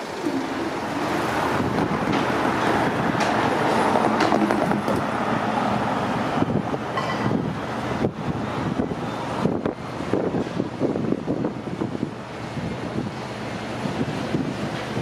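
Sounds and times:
traffic rumble: 0.0s - 15.0s
sharp knocks: 4.1s - 5.0s.

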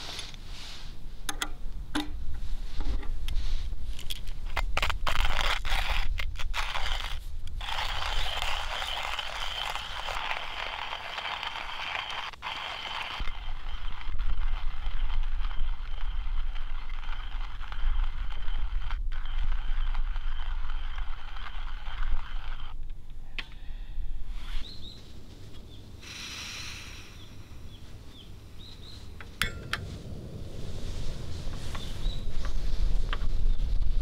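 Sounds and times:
hand coffee grinder grinding: 4.0s - 22.8s
birds chirping: 24.0s - 29.7s
gas stove burner hissing: 26.0s - 27.8s.

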